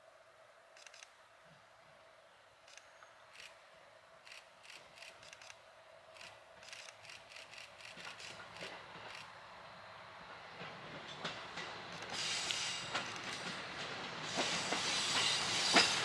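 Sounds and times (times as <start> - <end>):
diesel train rumble: 6.2 - 16.0.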